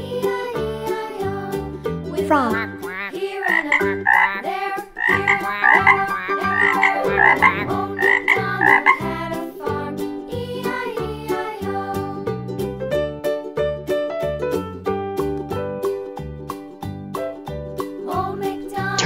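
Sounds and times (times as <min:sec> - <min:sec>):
children's background music: 0:00.0 - 0:19.0
frog croaking: 0:02.5 - 0:09.1.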